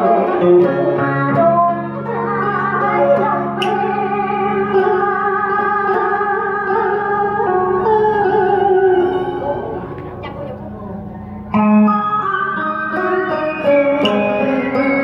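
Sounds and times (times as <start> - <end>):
woman singing into a microphone: 0.0 - 10.4
instrumental accompaniment: 0.0 - 15.0.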